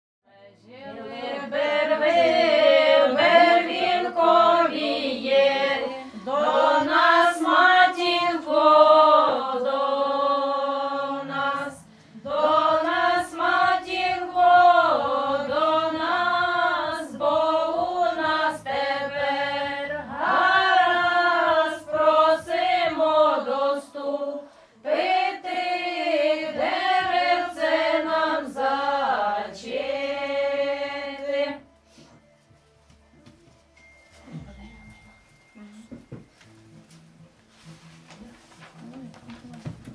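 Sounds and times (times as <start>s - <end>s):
women singing unaccompanied: 0.3s - 31.7s.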